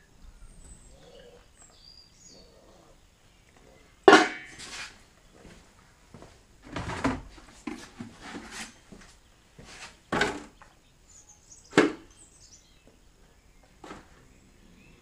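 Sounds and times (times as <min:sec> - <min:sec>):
buckets and pot clattering: 0:04.0 - 0:04.8.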